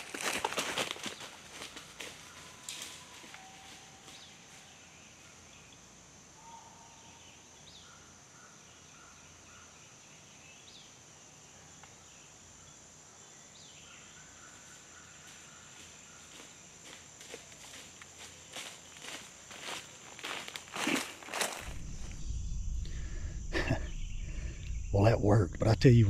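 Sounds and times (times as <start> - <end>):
high-pitched insect drone: 18.6 - 26.0.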